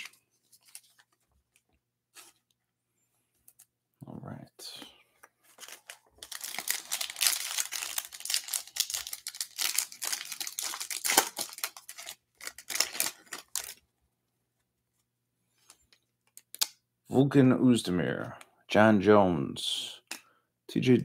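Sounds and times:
foil wrapper tearing and crinkling: 5.6 - 13.8.

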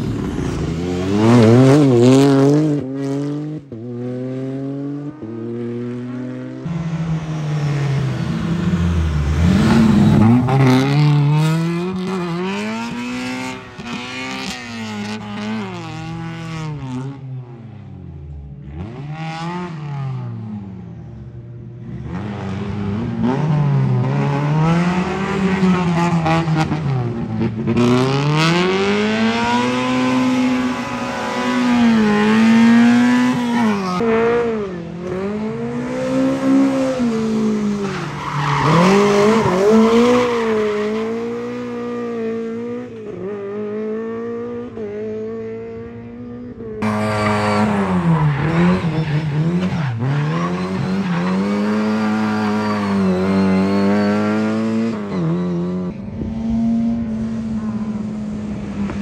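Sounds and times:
rally car engine revving: 0.0 - 17.7, 18.6 - 20.7, 21.8 - 59.0
tyres squealing: 46.9 - 55.3.

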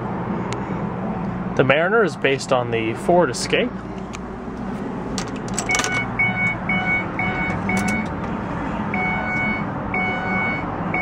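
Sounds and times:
keys jingling: 5.1 - 6.2, 7.5 - 8.3
car warning chime beeping: 5.5 - 11.0.

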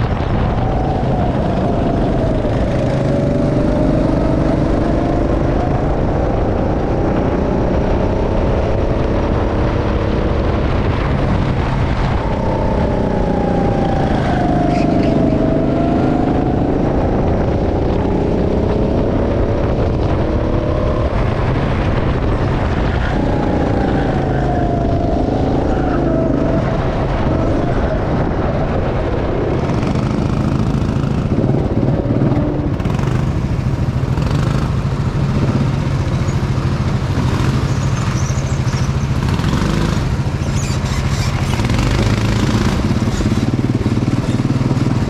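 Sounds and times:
go-kart engine running: 0.0 - 45.0.

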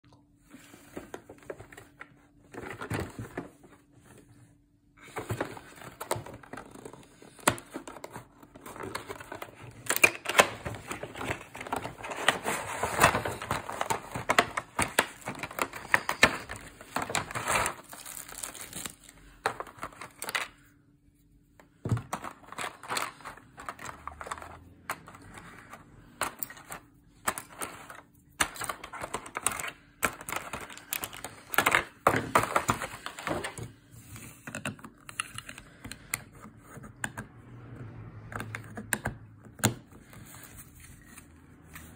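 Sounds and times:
thin plastic crinkling: 7.7 - 20.6.

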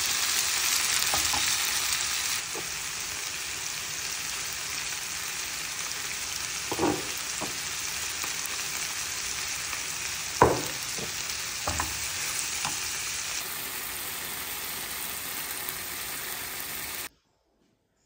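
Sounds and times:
vegetables sizzling in a frying pan: 0.0 - 17.1
utensil knocking against pan: 6.7 - 7.6, 10.4 - 12.0.

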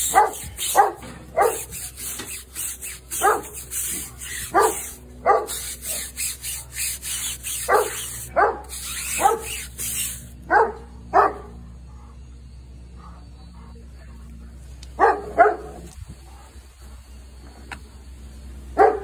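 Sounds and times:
tire scrubbing hiss: 0.0 - 10.4
dog barking: 0.1 - 1.7, 3.1 - 3.6, 4.4 - 5.7, 7.6 - 9.5, 10.5 - 11.6, 15.0 - 16.4, 18.8 - 19.0.

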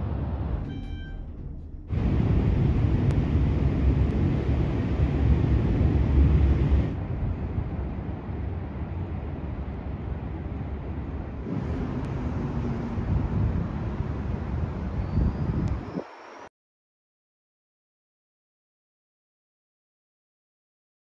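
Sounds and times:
distant traffic rumble: 0.0 - 16.5
wind: 0.0 - 16.5.

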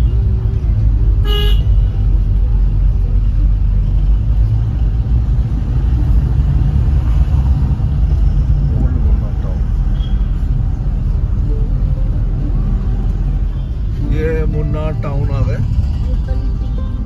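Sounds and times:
car engine and road rumble: 0.0 - 17.0
car horn toot: 1.2 - 1.8.

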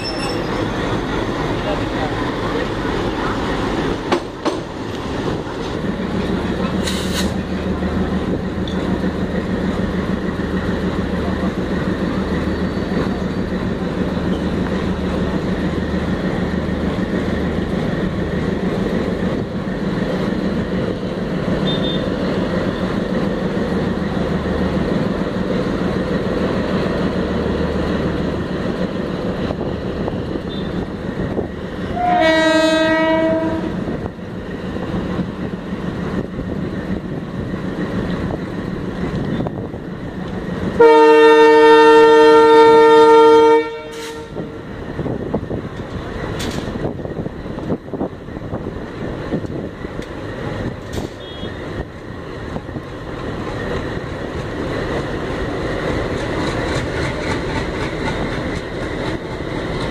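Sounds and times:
diesel locomotive engine droning: 0.0 - 59.9
locomotive horn blast: 21.6 - 22.1, 31.9 - 33.8, 40.8 - 44.5, 51.1 - 51.6.

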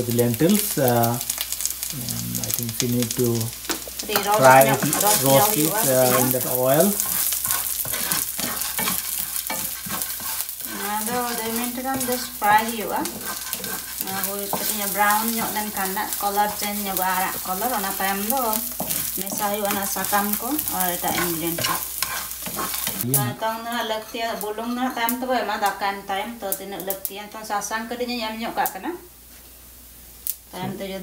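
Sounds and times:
food sizzling in hot oil: 0.0 - 31.0
wooden spatula stirring: 3.0 - 23.1.

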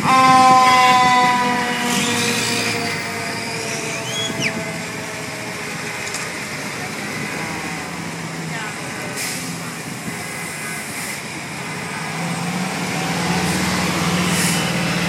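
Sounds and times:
fire engine air horn blast: 0.0 - 5.2.

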